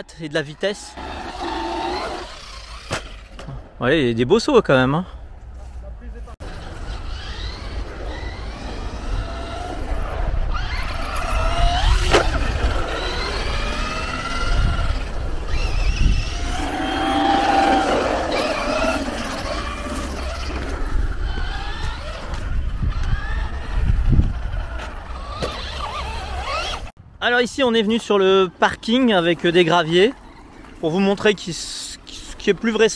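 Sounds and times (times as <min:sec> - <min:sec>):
electric motor whining: 0:00.9 - 0:03.2, 0:06.4 - 0:26.9.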